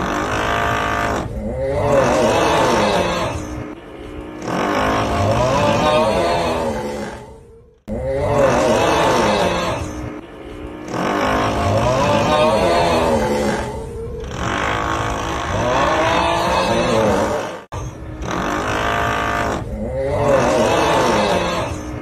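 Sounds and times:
groaning snoring voice: 0.0s - 22.0s.

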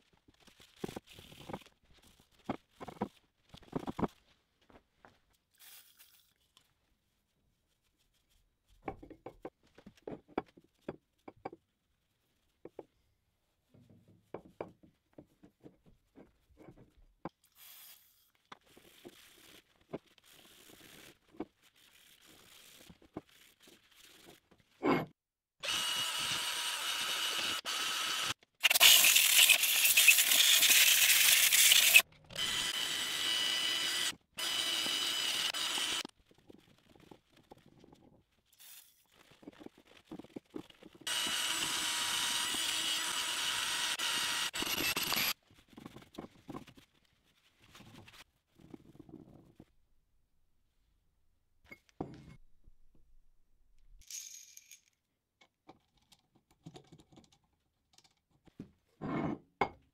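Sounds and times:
drill spinning wire brush on steel: 25.6s - 36.1s, 41.1s - 45.4s.

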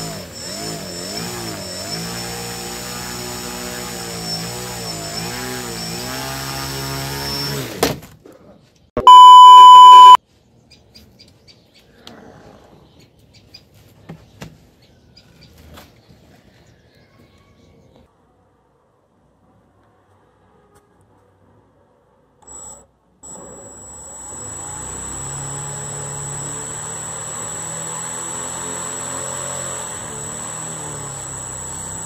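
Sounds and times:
small electric motor running: 0.0s - 7.7s, 22.4s - 32.0s
high test-tone beep: 9.0s - 10.2s.

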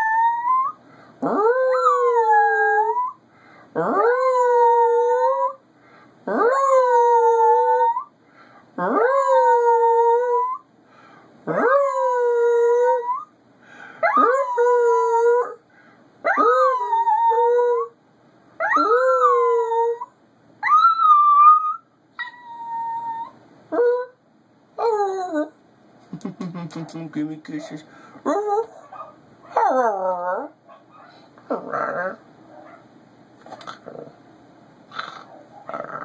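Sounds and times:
dog howling: 14.0s - 15.6s, 28.3s - 30.6s.

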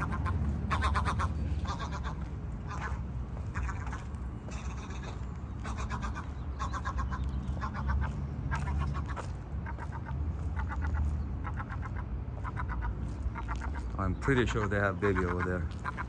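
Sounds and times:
gull alarm calls: 0.0s - 16.0s.

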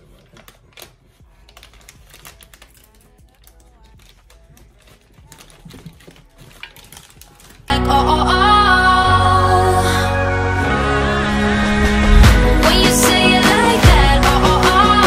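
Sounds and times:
small clicks and rustling of parts: 0.2s - 7.7s.

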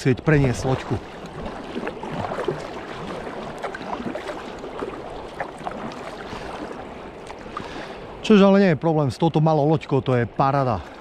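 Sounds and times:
small water splashes: 0.0s - 8.4s, 10.1s - 11.0s
river water rushing: 0.0s - 9.1s.

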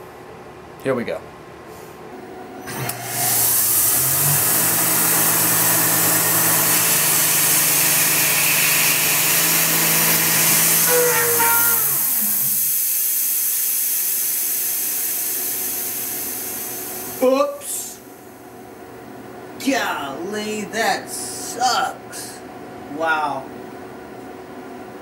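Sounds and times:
mill spindle humming: 2.2s - 13.7s
loud hiss of cutting: 2.8s - 17.2s.

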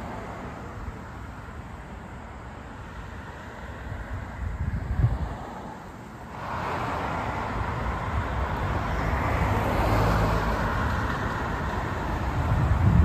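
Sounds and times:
cars passing: 0.0s - 13.0s.

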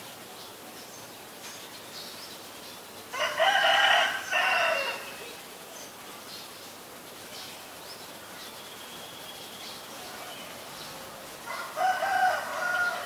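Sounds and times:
rooster crowing: 3.1s - 5.2s, 11.4s - 13.0s.

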